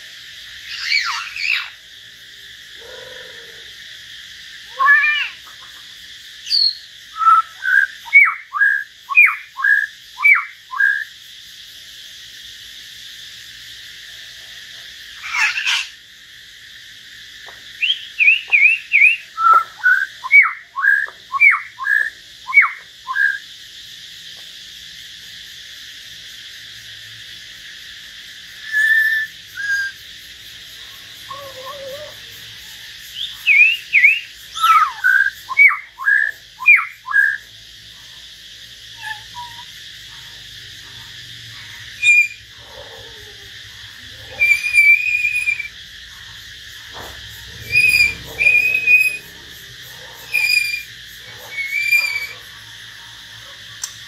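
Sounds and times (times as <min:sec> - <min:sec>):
birds whistling: 0:00.6 - 0:01.8, 0:04.7 - 0:05.6, 0:06.4 - 0:11.1, 0:15.2 - 0:16.0, 0:17.8 - 0:23.5, 0:28.6 - 0:30.0, 0:33.1 - 0:37.4, 0:38.9 - 0:40.2, 0:40.9 - 0:42.7, 0:43.8 - 0:52.6.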